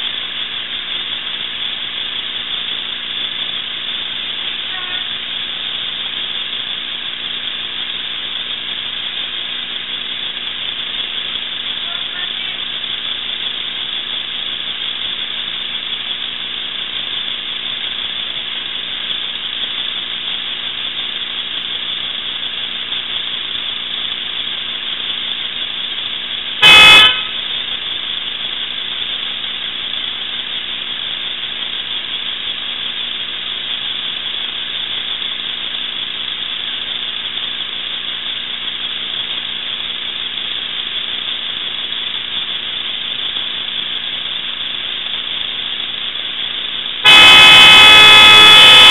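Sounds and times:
loud pitched beep: 26.6 - 27.6, 47.0 - 48.9
faint hum: 40.9 - 48.9.

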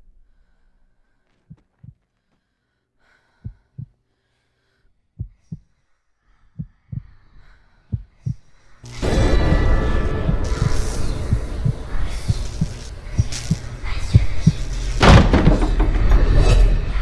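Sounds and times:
heartbeat thumps: 1.4 - 2.1, 3.4 - 4.0, 5.2 - 5.7, 6.6 - 7.2, 7.9 - 8.5, 9.1 - 16.0.

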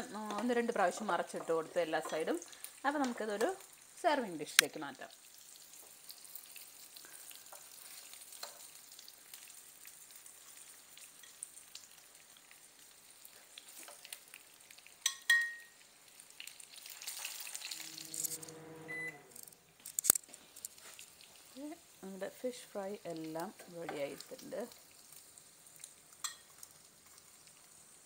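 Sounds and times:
fish sizzling in a pan: 0.2 - 18.1, 19.9 - 28.0
clink on glass dish: 15.0 - 15.7.

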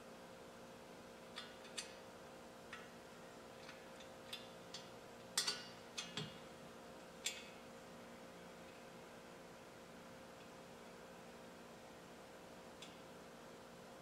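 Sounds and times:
faint steady hum: 0.0 - 14.0
light metallic clicks and taps: 7.2 - 7.6.

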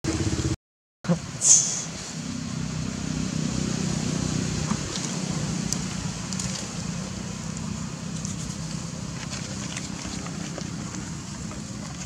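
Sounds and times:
low outdoor rumble: 0.1 - 12.0.

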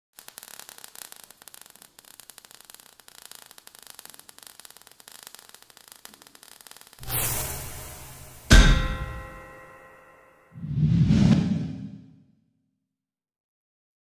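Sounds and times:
crackling sparks: 0.1 - 10.1.

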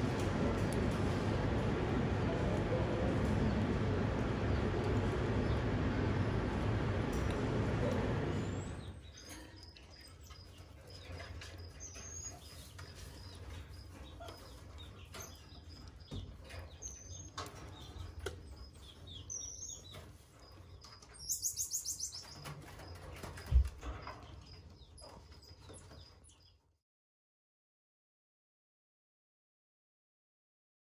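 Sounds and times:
loud steady noise: 0.0 - 8.9.

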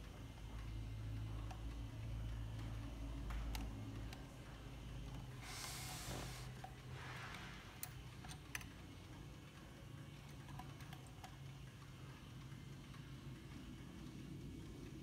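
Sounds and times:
small metallic clicks: 1.4 - 5.4, 6.6 - 15.0.

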